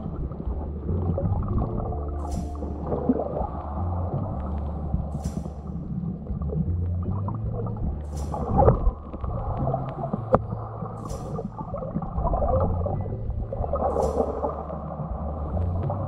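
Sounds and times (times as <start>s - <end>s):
underwater rumble and gurgle: 0.0s - 16.0s
sharp click: 1.5s - 3.3s, 4.4s - 6.0s, 7.2s - 12.0s, 13.8s - 14.7s
short hiss: 2.2s - 2.9s, 5.1s - 5.7s, 8.1s - 8.7s, 11.0s - 11.6s.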